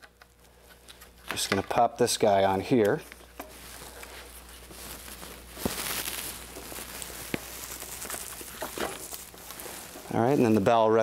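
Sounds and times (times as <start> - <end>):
rubbing and rustling of handling: 2.6 - 11.0.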